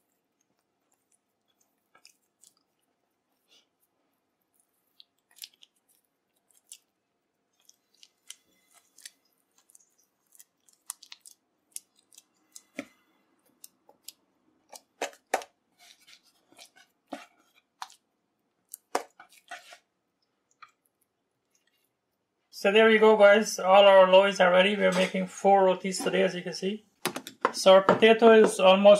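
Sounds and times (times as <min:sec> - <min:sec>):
dough squelching: 0:00.0 - 0:22.4.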